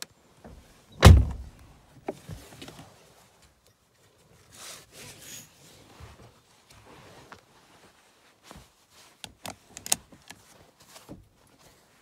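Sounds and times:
quiet rustling: 0.4s - 12.0s
vehicle door thump: 1.0s - 1.5s.

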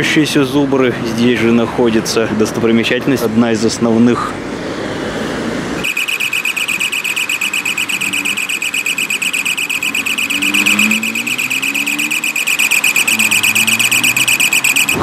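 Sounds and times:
high-pitched electronic beeping: 5.8s - 15.0s.

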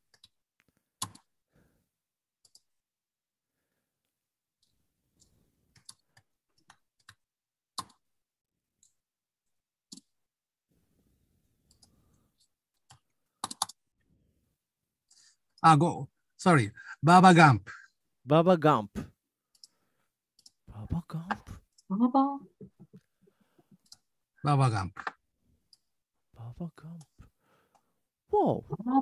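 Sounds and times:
mouse and keyboard clicks: 12.8s - 13.8s.

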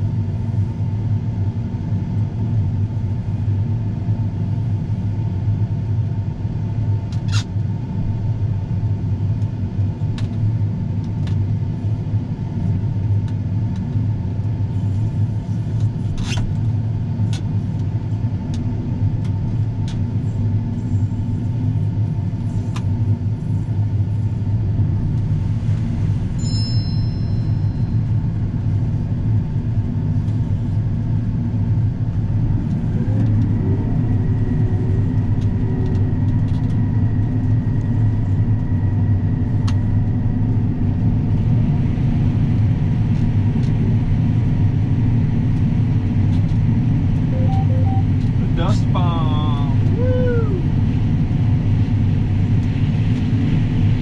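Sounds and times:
combine engine drone: 0.0s - 54.0s
machinery whine: 31.3s - 54.0s
short high electronic tone: 47.4s - 48.1s.

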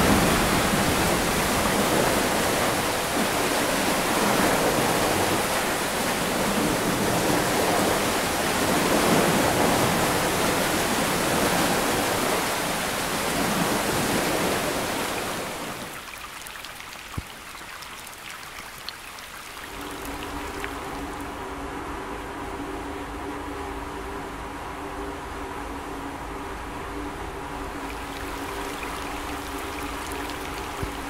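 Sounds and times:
rushing river water: 0.0s - 31.0s
low steady hum: 19.4s - 31.0s.

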